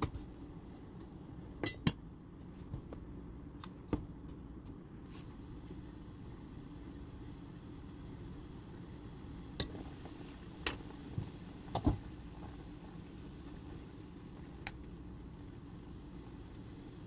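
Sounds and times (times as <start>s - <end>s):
stew boiling: 5.1s - 17.0s.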